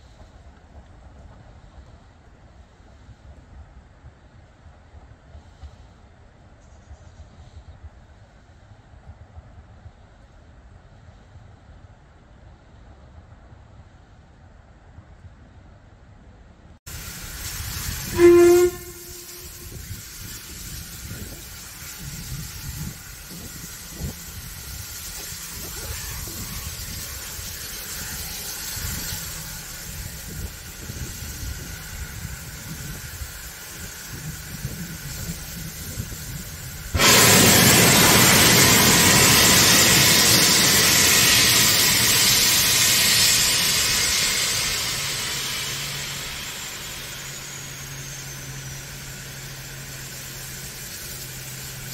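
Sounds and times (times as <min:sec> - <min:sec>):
loud hiss of steam: 0:00.0 - 0:06.1, 0:16.9 - 0:51.9
locomotive low rumble: 0:00.0 - 0:51.9
steam locomotive whistle toot: 0:17.4 - 0:51.9.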